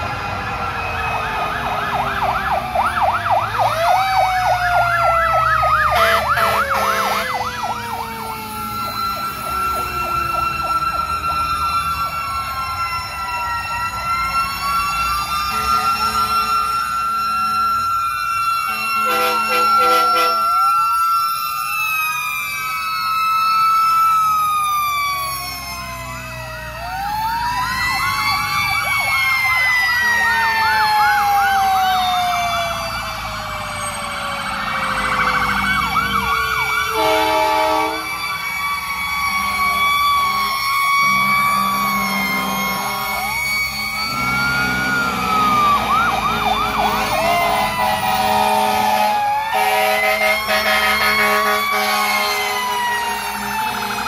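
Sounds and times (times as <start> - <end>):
fire truck sirens wailing: 0.0 - 54.0
siren yelps: 0.0 - 54.0
truck engines rumbling: 0.0 - 54.0
deep horn blasts: 18.7 - 20.4, 47.4 - 52.5.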